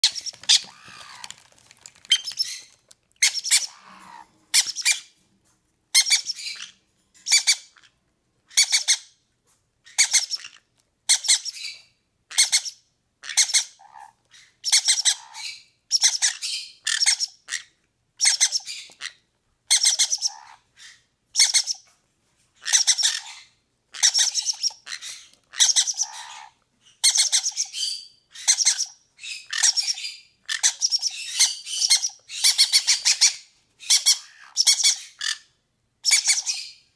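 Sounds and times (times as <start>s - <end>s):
chicks begging squawks: 0.0s - 5.1s, 14.8s - 21.8s, 22.6s - 35.4s.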